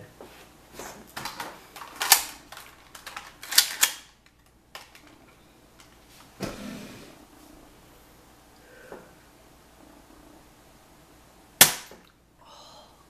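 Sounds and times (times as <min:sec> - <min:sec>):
plastic pistol clicks and clacks: 0:01.8 - 0:05.1.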